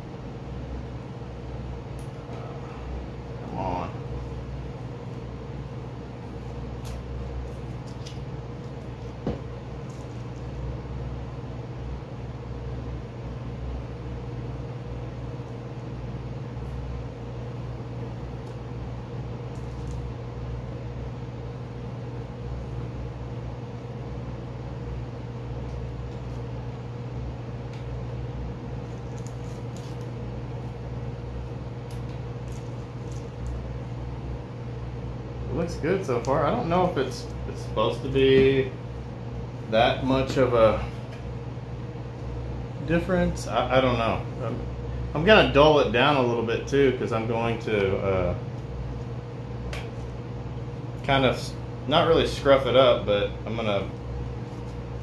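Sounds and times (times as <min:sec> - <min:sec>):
low machine hum: 0:00.0 - 0:55.0
masking tape peeling: 0:28.9 - 0:30.2.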